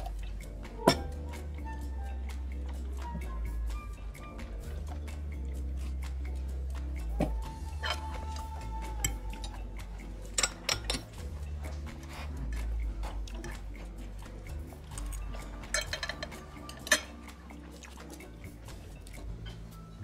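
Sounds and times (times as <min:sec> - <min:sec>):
cutlery clinking on a plate: 0:10.4 - 0:11.2, 0:15.6 - 0:17.2.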